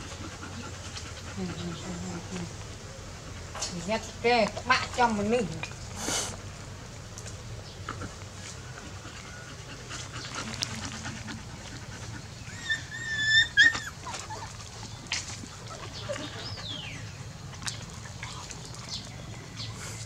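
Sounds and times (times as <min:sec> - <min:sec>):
dog whining: 0:12.4 - 0:14.6.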